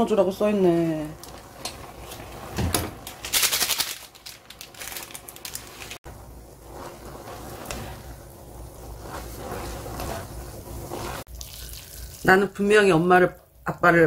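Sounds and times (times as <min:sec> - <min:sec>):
chopsticks scraping a pan: 0:06.6 - 0:11.3.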